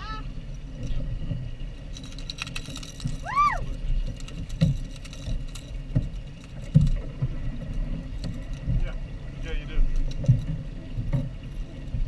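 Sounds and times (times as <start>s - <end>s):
water thumping against hull: 0.0s - 12.0s.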